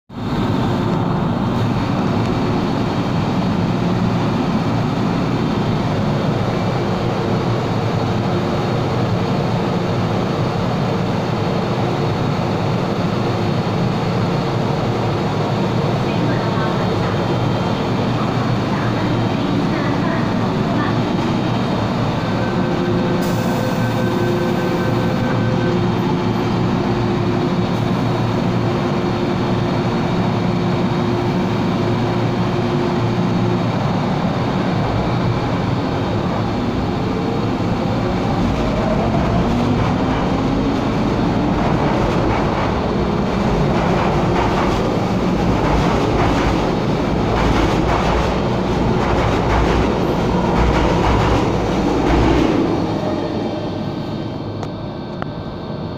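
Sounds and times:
wheel clatter on rails: 38.2 - 52.8.

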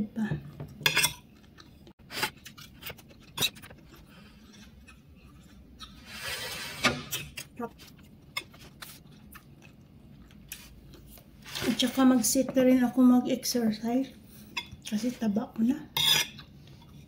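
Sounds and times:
fork scraping a plate: 2.1 - 7.4, 16.0 - 17.0
quiet chewing: 7.7 - 11.3.

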